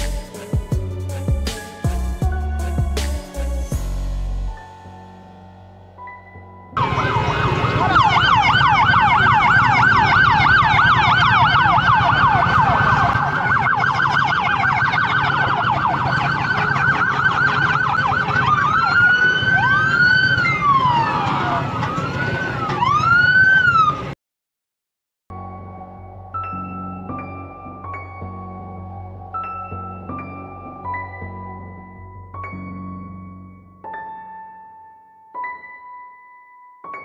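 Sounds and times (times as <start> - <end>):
police siren wailing: 6.8 - 24.2.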